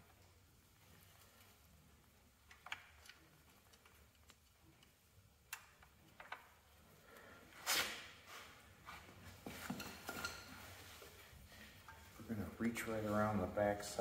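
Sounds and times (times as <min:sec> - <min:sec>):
handling noises: 0:07.6 - 0:13.4.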